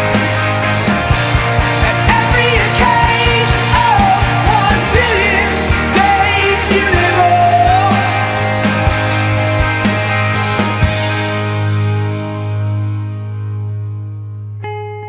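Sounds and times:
bass line: 0.0s - 15.0s
person singing: 1.7s - 8.9s.

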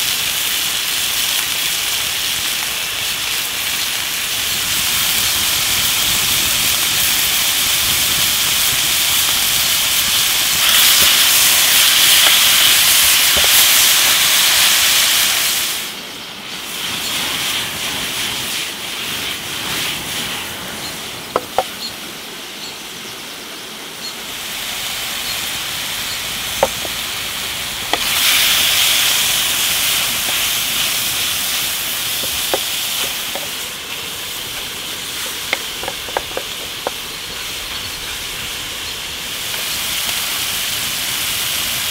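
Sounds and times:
meat sizzling in skillet: 0.0s - 21.9s, 24.2s - 41.9s
sharp pops: 10.6s - 14.2s, 21.3s - 21.8s, 26.5s - 27.1s, 27.8s - 31.4s, 32.0s - 33.7s, 34.5s - 37.1s.

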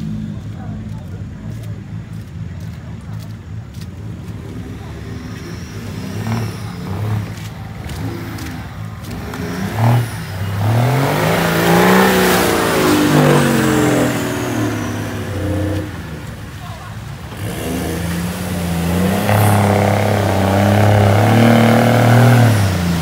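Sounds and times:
off-road buggy engine revving: 0.0s - 23.0s.

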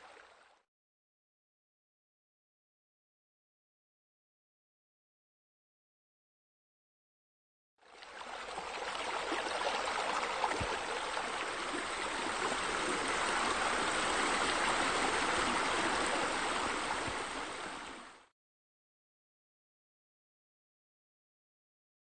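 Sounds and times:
splashing water rushing: 8.0s - 18.1s.

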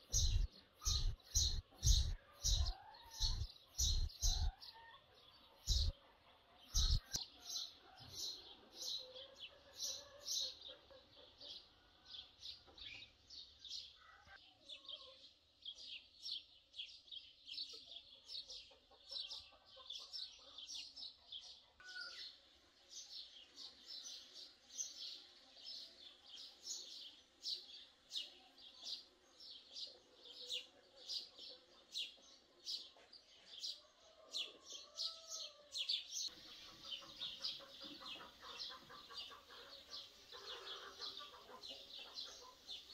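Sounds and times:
small birds chirping: 0.0s - 42.9s.

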